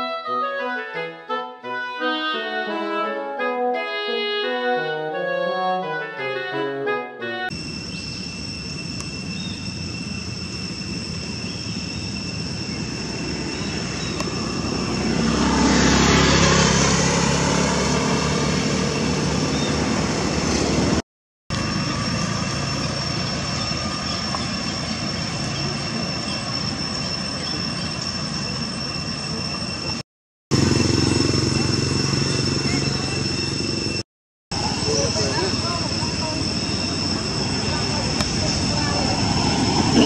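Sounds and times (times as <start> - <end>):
traffic noise: 7.5 - 40.0
vehicle passing close by: 12.8 - 21.0
thin high tones: 34.6 - 40.0.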